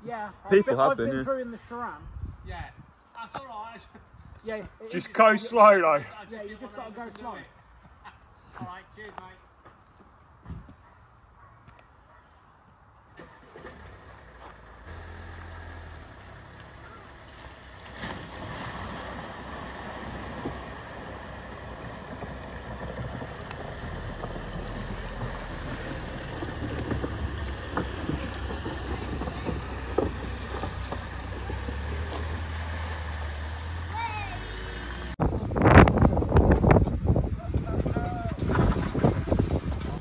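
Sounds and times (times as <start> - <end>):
low engine hum: 13.2 - 37.1
water rushing and sloshing: 16.2 - 35.1.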